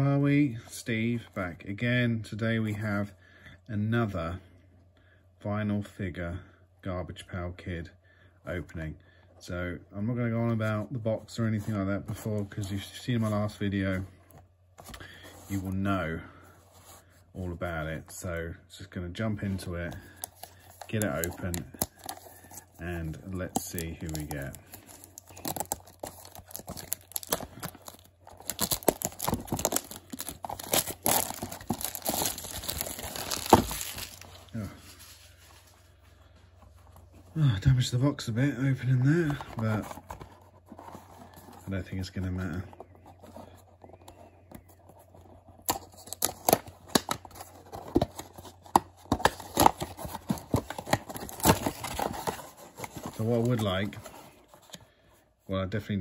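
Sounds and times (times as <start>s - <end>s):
plastic shrink-wrap crinkling: 23.4s - 35.6s
cardboard box tearing and crackling: 23.5s - 34.5s, 45.6s - 54.3s.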